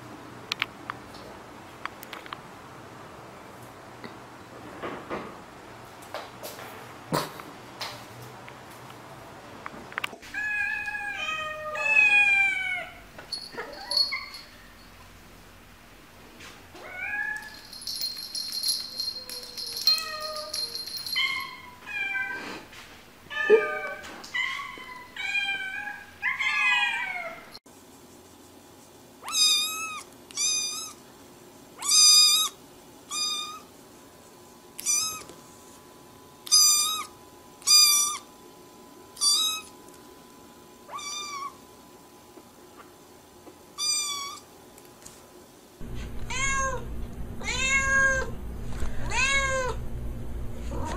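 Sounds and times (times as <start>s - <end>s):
cats meowing: 10.3s - 13.0s, 23.3s - 27.5s, 40.9s - 41.6s, 46.0s - 48.4s, 49.0s - 49.8s.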